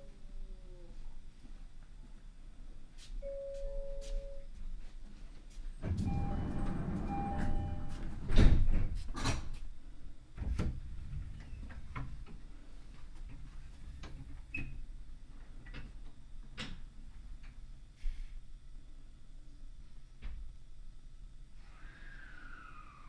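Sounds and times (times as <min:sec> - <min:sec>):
sliding doors clunking: 0:05.8 - 0:09.5
train door chime: 0:06.0 - 0:08.2.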